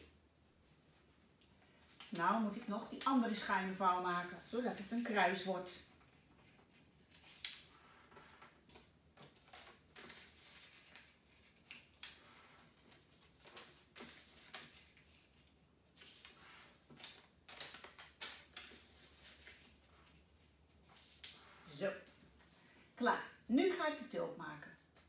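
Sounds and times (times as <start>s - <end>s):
paper crackling being folded: 0.7s - 22.8s.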